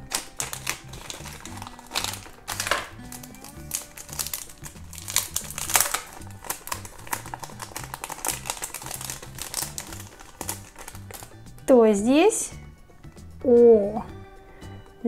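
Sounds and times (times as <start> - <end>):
foil and plastic wrapper crinkling: 0.0 - 11.4
soft background music: 0.0 - 15.0.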